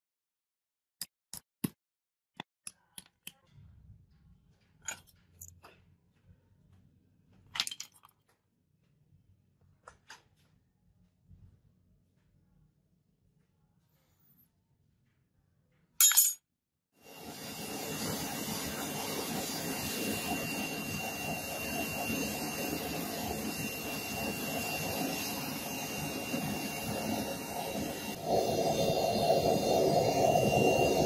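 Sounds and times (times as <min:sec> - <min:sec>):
loud metallic clink: 0:16.0 - 0:16.4
thin high whine: 0:17.0 - 0:31.0.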